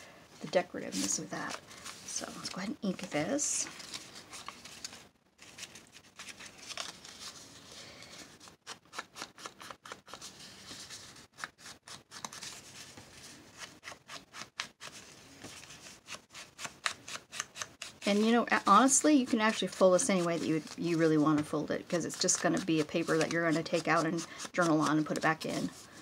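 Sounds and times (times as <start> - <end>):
ink pad scuffing on paper: 0.4 - 5.0, 17.8 - 26.0
paper being handled: 0.4 - 26.0.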